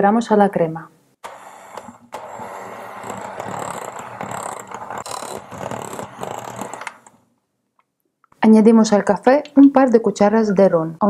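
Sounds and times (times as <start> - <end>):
electric hand mixer whipping: 1.2 - 7.2.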